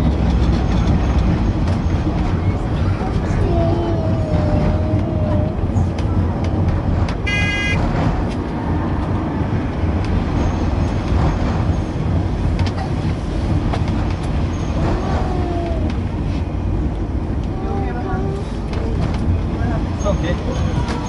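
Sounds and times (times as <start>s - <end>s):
tram rumbling on track: 0.0s - 21.0s
short high ringing tone: 7.3s - 7.8s.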